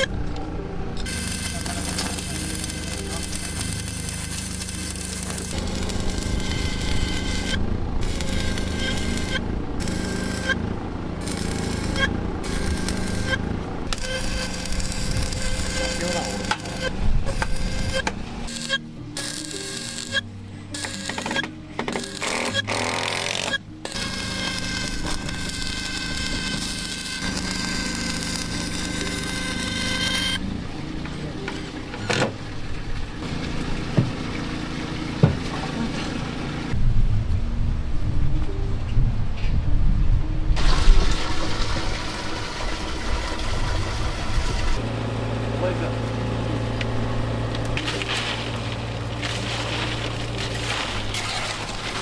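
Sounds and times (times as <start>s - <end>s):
music: 0.0s - 10.8s, 11.8s - 33.2s, 36.7s - 43.8s, 47.8s - 52.0s
steady engine drone: 0.0s - 52.0s
steady low hum: 0.0s - 52.0s
welding arc crackling: 1.0s - 30.4s, 46.6s - 52.0s.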